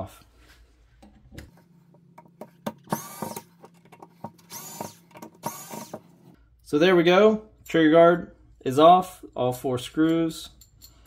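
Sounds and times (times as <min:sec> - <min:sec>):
electric screwdriver whirring: 0:02.7 - 0:03.5, 0:04.4 - 0:06.1.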